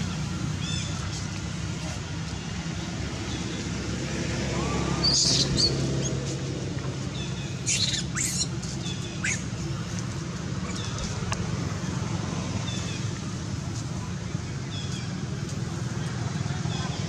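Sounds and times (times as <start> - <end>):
distant traffic hum: 0.0 - 17.0
macaques squealing: 4.9 - 5.8, 7.6 - 9.5.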